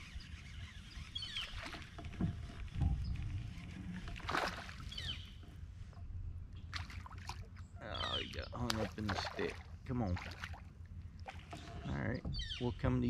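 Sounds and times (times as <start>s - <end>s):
bird chirps: 0.0s - 1.8s, 4.9s - 5.4s, 7.8s - 8.6s, 11.6s - 12.9s
knocks and rumble from kayak hull: 1.5s - 6.2s, 11.2s - 13.0s
water splash: 4.1s - 5.0s.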